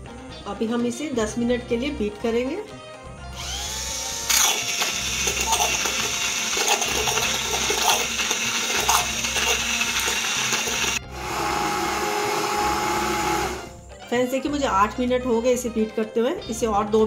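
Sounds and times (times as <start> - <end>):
hand blender motor whining: 3.3 - 13.8
cream churning and sloshing: 4.8 - 11.0.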